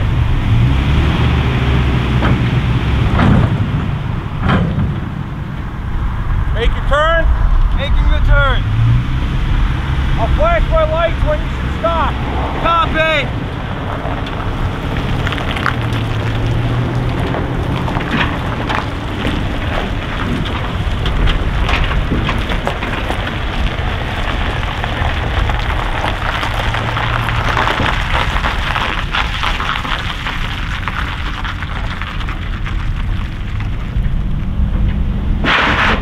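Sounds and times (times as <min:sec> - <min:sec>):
diesel truck engine rumble: 0:00.0 - 0:36.0
wind noise on microphone: 0:00.0 - 0:36.0.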